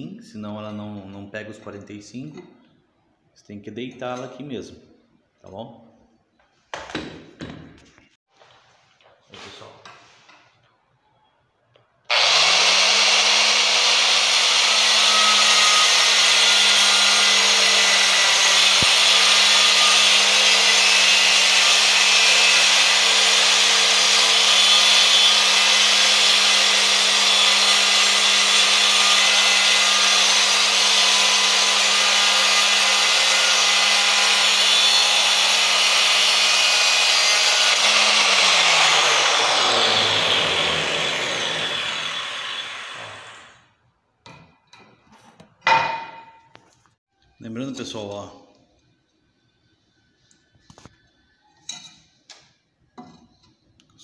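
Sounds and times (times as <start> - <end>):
angle grinder cutting tile: 12.1 - 43.6.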